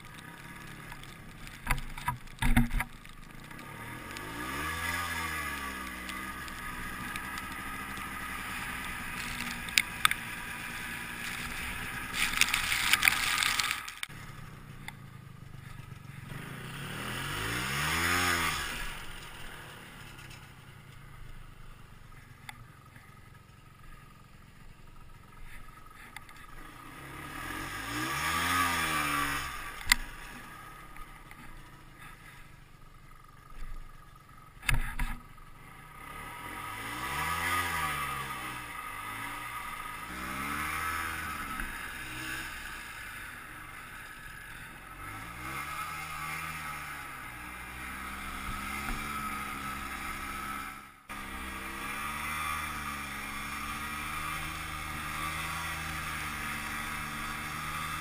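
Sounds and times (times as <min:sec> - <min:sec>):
snowmobile engine revving: 0:03.5 - 0:14.6, 0:16.2 - 0:20.6, 0:26.0 - 0:32.4, 0:35.8 - 0:58.0.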